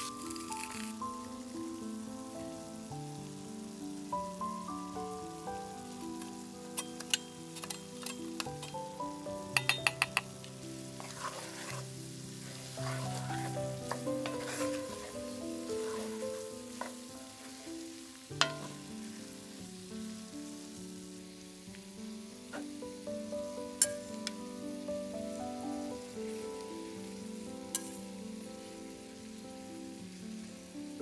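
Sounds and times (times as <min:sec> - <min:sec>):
wooden spoon stirring: 0:00.0 - 0:01.0, 0:06.2 - 0:19.6
potatoes sizzling in a skillet: 0:00.0 - 0:31.0
soft background music: 0:00.0 - 0:31.0
utensil knocking on pan: 0:09.5 - 0:10.3, 0:18.4 - 0:18.9.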